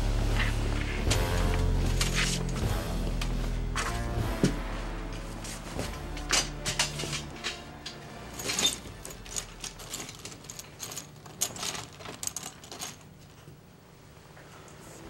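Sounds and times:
jewellery clinking in metal box: 8.3s - 13.4s.

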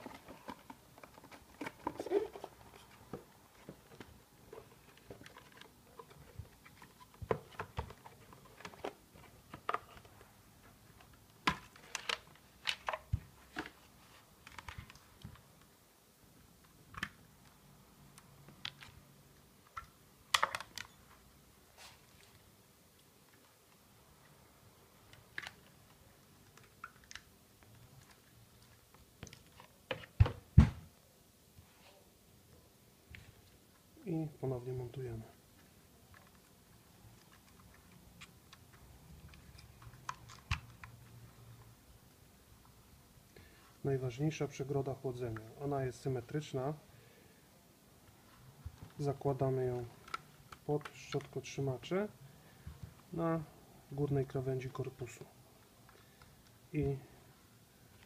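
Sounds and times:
plastic clicks and knocks: 19.7s - 20.9s.

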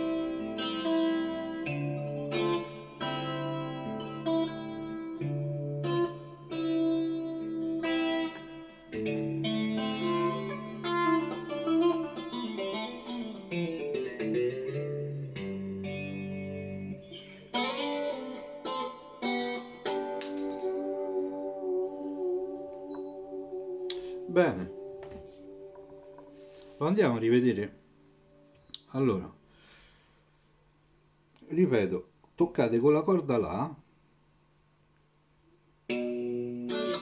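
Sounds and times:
clean electric guitar arpeggios: 0.0s - 26.8s, 35.9s - 37.0s.

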